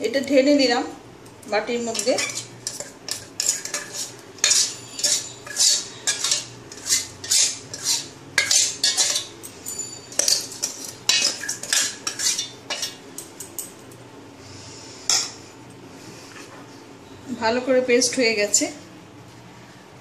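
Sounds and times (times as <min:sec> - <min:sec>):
spoon scraping metal jar: 0:01.8 - 0:13.0.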